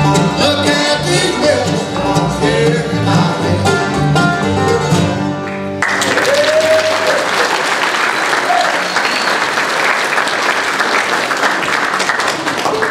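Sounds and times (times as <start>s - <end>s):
congregation applauding: 5.8s - 12.9s.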